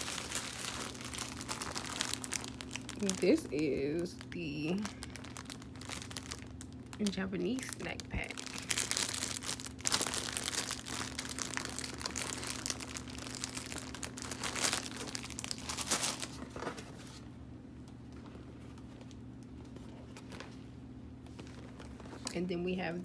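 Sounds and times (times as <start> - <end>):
plastic packaging crinkling: 0.0 - 17.2, 21.2 - 22.4.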